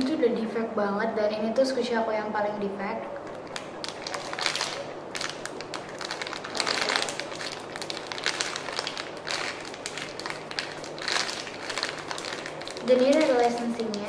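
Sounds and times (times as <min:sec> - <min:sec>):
plastic bag crinkling: 0:03.2 - 0:14.0.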